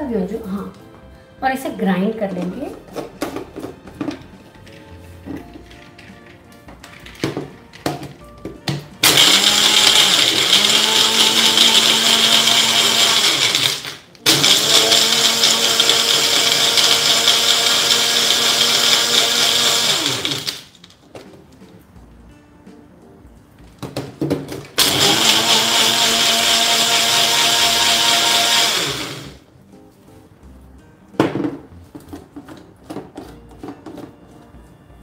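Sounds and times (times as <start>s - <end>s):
blender grinding ice: 9.0s - 20.8s, 24.8s - 29.4s.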